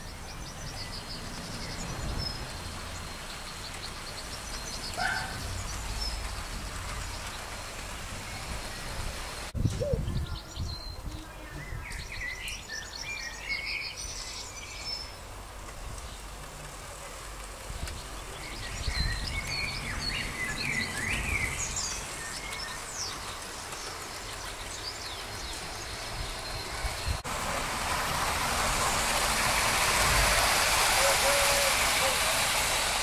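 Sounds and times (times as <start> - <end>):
birds chirping: 0.0 - 15.3, 17.7 - 27.2
steady hiss: 21.6 - 33.0.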